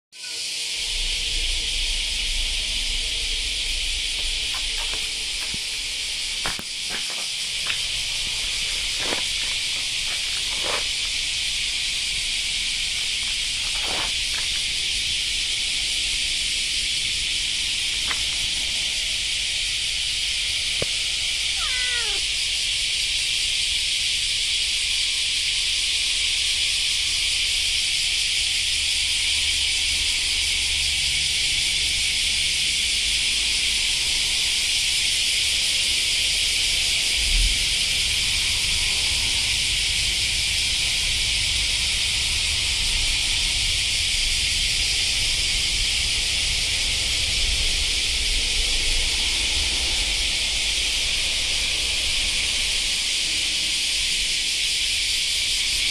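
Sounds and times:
cicadas droning: 0.1 - 55.9.

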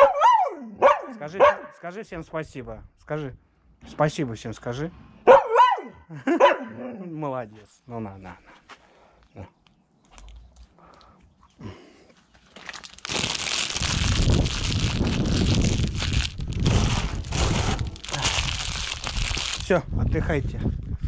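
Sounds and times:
rustling and crumpling: 12.1 - 19.7.

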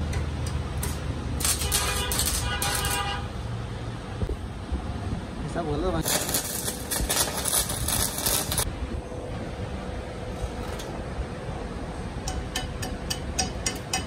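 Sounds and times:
welding arc crackling: 0.3 - 3.4, 5.9 - 8.8.

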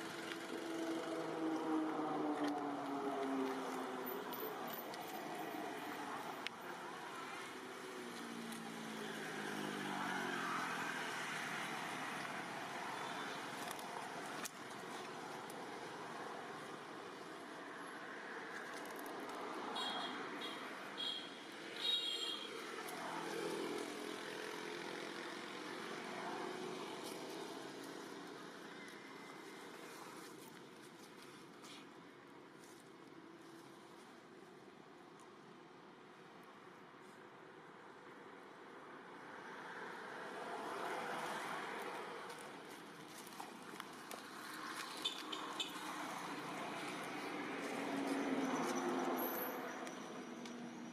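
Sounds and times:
background traffic noise: 0.0 - 50.9
motor vehicle passing by: 7.2 - 13.8.

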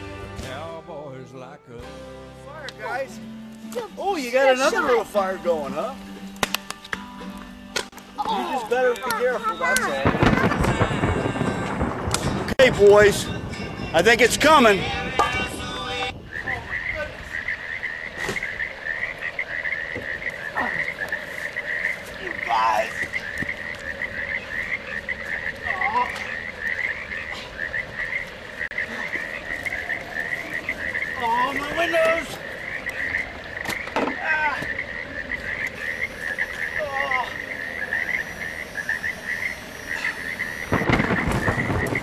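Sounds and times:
wavering calls: 14.6 - 42.0
frogs calling in pulsing trill: 16.1 - 42.0.

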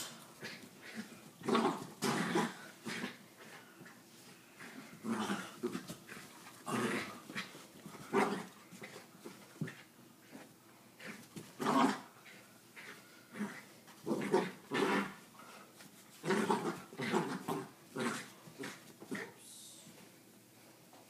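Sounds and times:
small dog growling: 0.4 - 3.6, 4.6 - 9.0, 11.0 - 15.2, 16.2 - 19.4.

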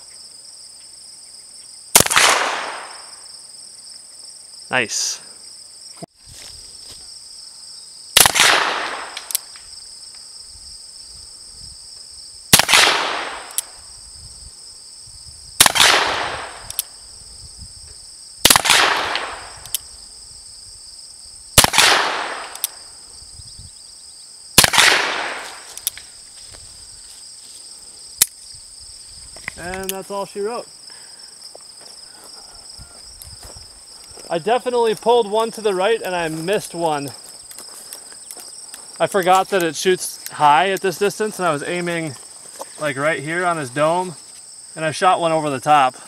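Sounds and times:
revolver gunshots with echo: 2.0 - 3.1, 8.2 - 9.2, 12.5 - 13.6, 15.6 - 16.6, 18.4 - 19.6, 21.6 - 22.7, 24.6 - 25.7.

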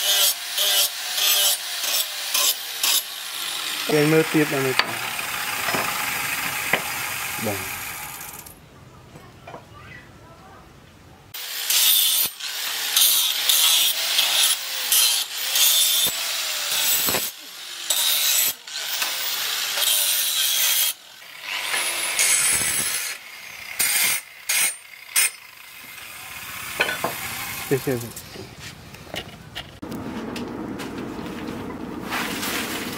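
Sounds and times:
angle grinder grinding steel: 0.0 - 8.6, 11.4 - 28.5.

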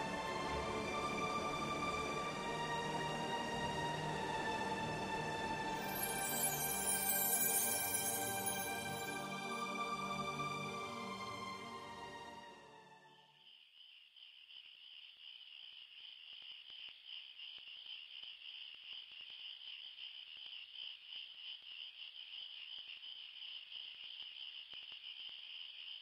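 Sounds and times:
crickets trilling: 5.8 - 9.2, 13.4 - 26.0.

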